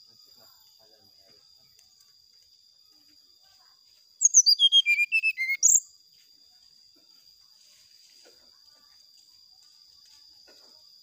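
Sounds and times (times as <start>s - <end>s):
bird singing descending notes: 4.2s - 5.9s.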